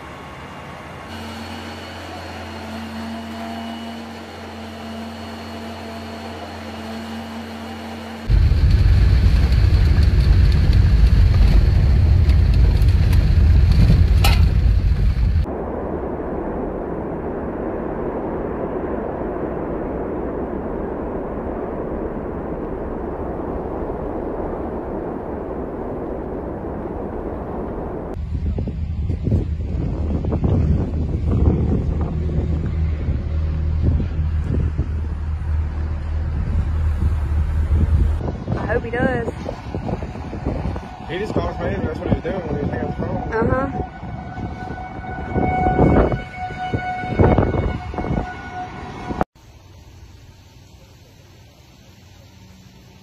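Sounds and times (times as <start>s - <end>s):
low mechanical hum: 0.0s - 41.6s
roaring wind: 0.0s - 49.3s
even hiss: 49.4s - 53.0s.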